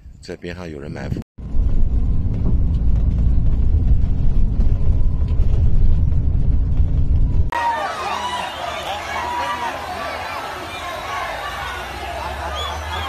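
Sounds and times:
vehicle road and engine rumble: 0:01.4 - 0:07.5, 0:09.8 - 0:13.0.

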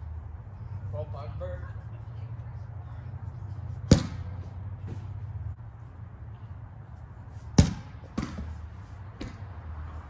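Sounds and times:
medicine ball thuds: 0:03.8 - 0:05.2, 0:07.6 - 0:08.6.

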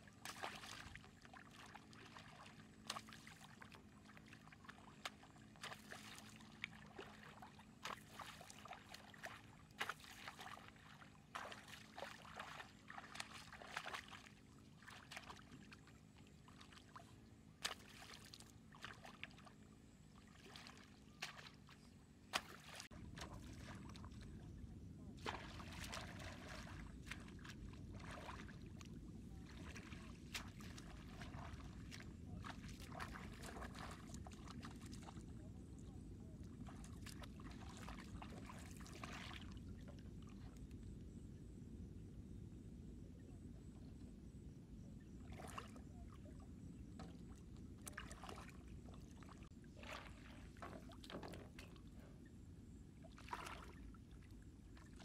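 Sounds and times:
pole splashing in muddy water: 0:00.2 - 0:15.8, 0:17.6 - 0:19.5, 0:20.3 - 0:24.2, 0:25.2 - 0:35.2, 0:47.8 - 0:51.9, 0:53.1 - 0:53.9.

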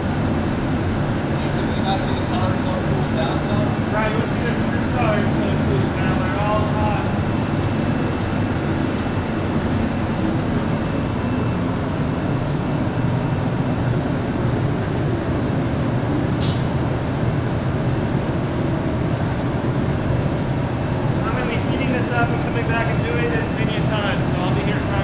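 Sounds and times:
gas burner and blowers rushing: 0:00.0 - 0:25.0.

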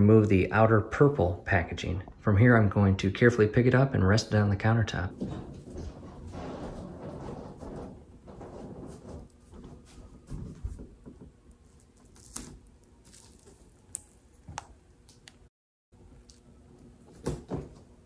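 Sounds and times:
plastic wrapping rustling: 0:11.5 - 0:14.5.

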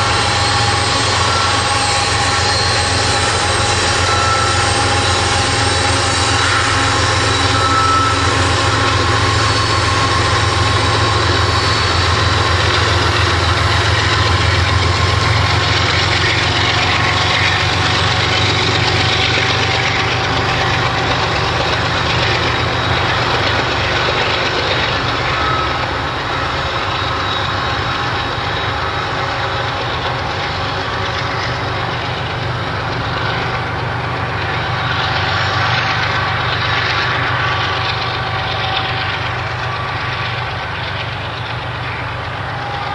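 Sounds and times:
freight train rumbling past: 0:00.0 - 0:42.9.

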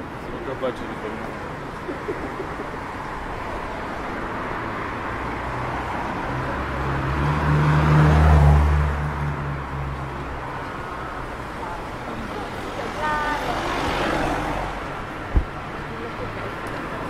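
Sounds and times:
street traffic noise: 0:00.0 - 0:17.0
vehicle engine passing by: 0:05.3 - 0:10.0.

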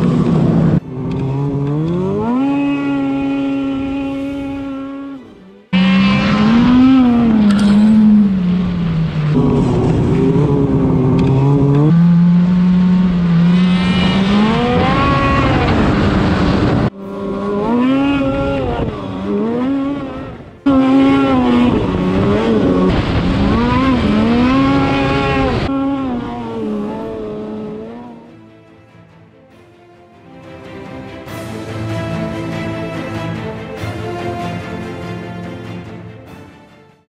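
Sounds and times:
snowmobile engine revving: 0:00.0 - 0:28.4.

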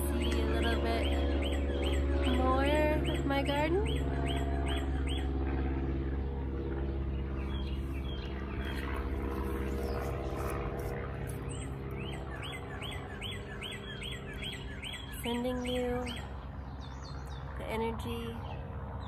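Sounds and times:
steady low hum: 0:00.0 - 0:19.0
songbird chirping: 0:06.7 - 0:18.7.

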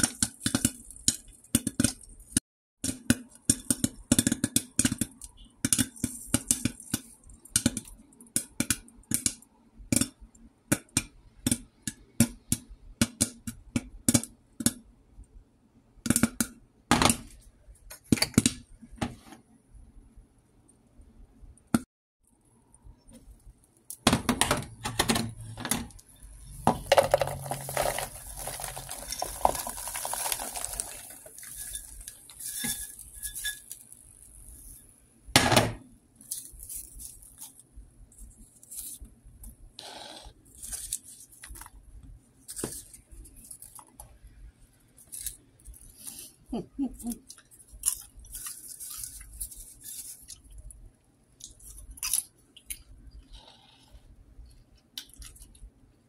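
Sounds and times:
popcorn popping in a pot: 0:00.0 - 0:14.9, 0:16.0 - 0:17.3, 0:23.9 - 0:35.8
popcorn rattling against metal pot: 0:24.3 - 0:34.8.

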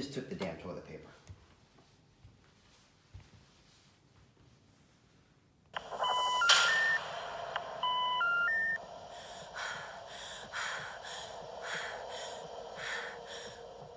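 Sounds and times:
rising electronic beeps: 0:05.8 - 0:08.8.

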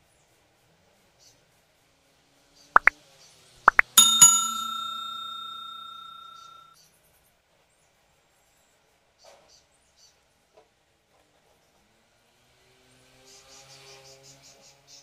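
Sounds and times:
short popping clicks: 0:03.7 - 0:04.7
bright bell ding: 0:03.7 - 0:06.7.

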